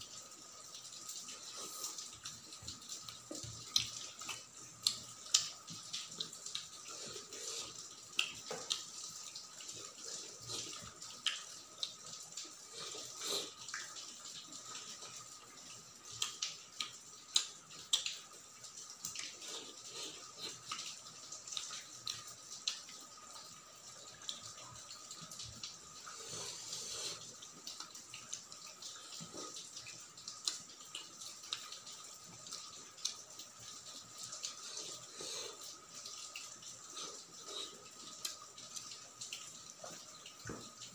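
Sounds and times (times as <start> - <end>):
wet chewing and mouth sounds: 1.2 - 23.4, 24.1 - 40.9
sharp clicks and smacks: 16.2 - 18.2.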